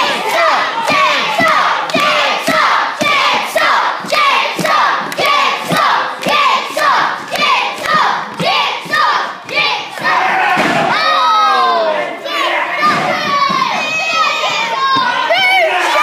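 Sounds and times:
crowd chanting: 0:00.0 - 0:16.0
hand claps: 0:01.4 - 0:02.6.

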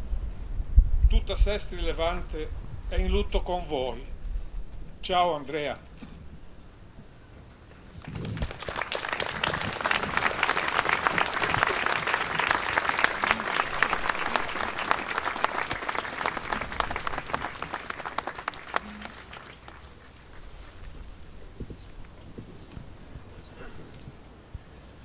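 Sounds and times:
large crowd applauding: 0:08.0 - 0:20.4.

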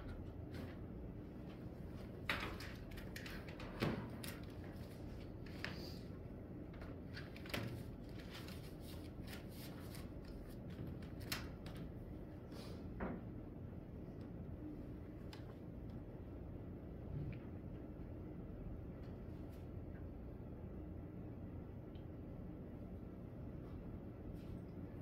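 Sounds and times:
small clicks and knocks at desks: 0:02.0 - 0:05.9, 0:10.2 - 0:12.0.

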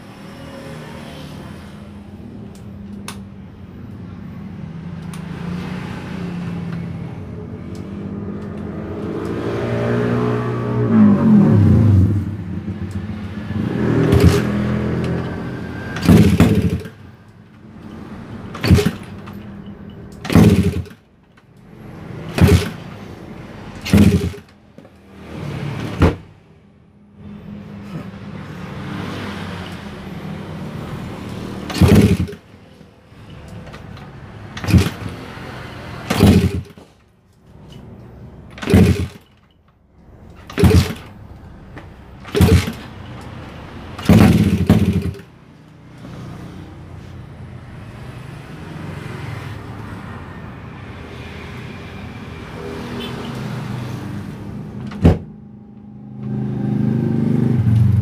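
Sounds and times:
motorcycle engine backfiring bangs: 0:10.9 - 0:17.1, 0:18.5 - 0:19.4, 0:20.2 - 0:21.0, 0:22.3 - 0:23.0, 0:23.8 - 0:24.5, 0:31.6 - 0:32.5, 0:34.5 - 0:35.4, 0:36.0 - 0:36.9, 0:38.6 - 0:39.3, 0:40.4 - 0:41.2, 0:42.2 - 0:43.1, 0:43.9 - 0:45.3
motorcycle engine running: 0:16.0 - 0:16.9, 0:23.8 - 0:24.4, 0:31.7 - 0:32.4, 0:42.3 - 0:42.9, 0:44.0 - 0:45.2.

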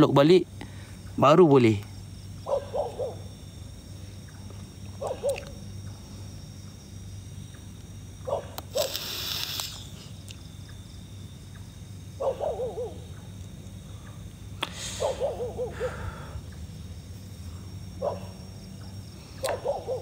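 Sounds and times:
insect chorus: 0:00.0 - 0:20.0
owl hooting: 0:04.2 - 0:05.7, 0:07.5 - 0:10.9, 0:11.5 - 0:16.8, 0:18.0 - 0:20.0
brief hiss: 0:08.8 - 0:10.1.

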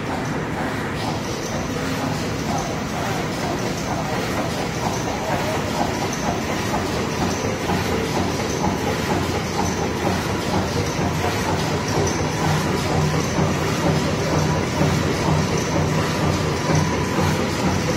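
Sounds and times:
low machine hum: 0:00.0 - 0:17.9
machine clattering: 0:00.0 - 0:17.9.

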